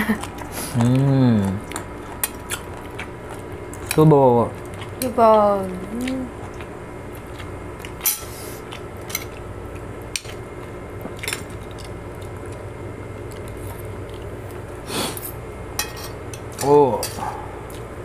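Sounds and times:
low steady hum: 0.0 - 18.0
cutlery clicking on plates: 15.8 - 17.2.

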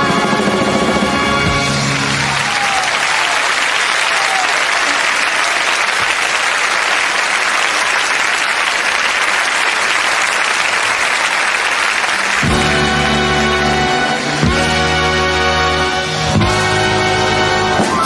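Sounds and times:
audience applauding: 1.6 - 14.6.

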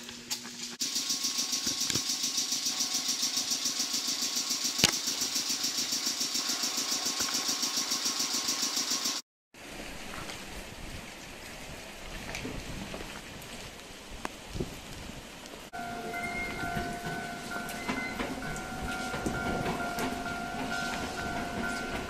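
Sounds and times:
train air compressor chugging: 0.7 - 9.2, 15.8 - 22.0
sharp click: 4.8 - 5.0.

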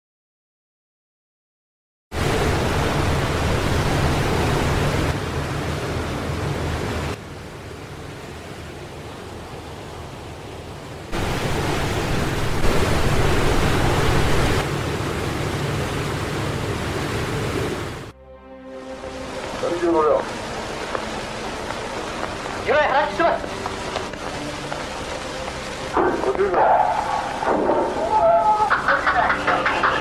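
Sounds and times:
low hum: 2.2 - 19.7
old film soundtrack hiss: 2.2 - 30.0.

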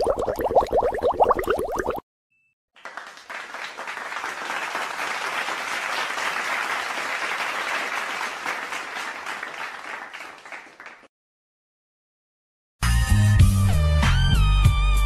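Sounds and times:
crowd applauding: 2.8 - 11.1.

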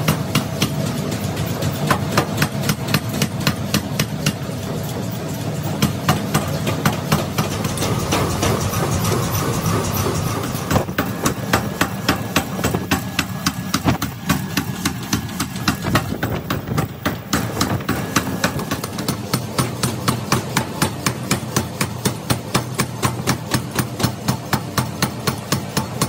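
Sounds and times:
power hammer striking steel: 0.0 - 26.0
machine humming: 6.4 - 18.9.

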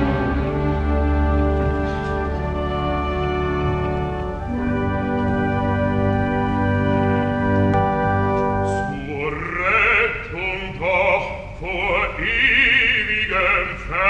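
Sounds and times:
orchestra chord: 0.0 - 9.4
bass voice singing: 8.7 - 14.0.

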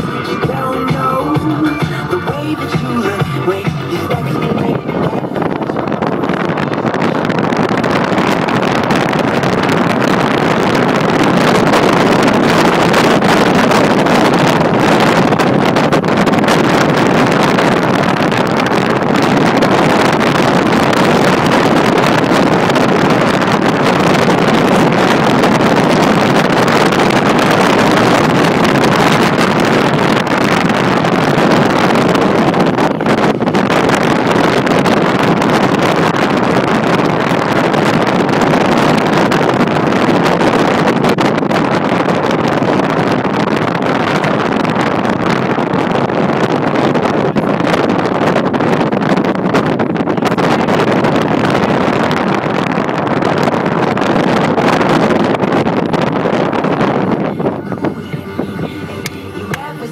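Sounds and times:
car road and wind noise: 0.0 - 59.9.

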